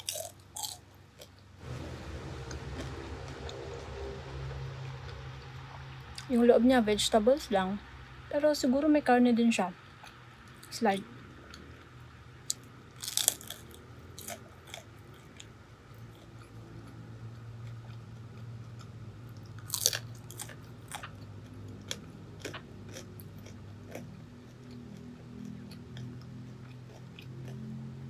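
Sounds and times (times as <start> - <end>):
soft chewing crackles: 9.8 - 28.0
biting into crisp dumpling: 12.5 - 17.0, 17.6 - 28.0.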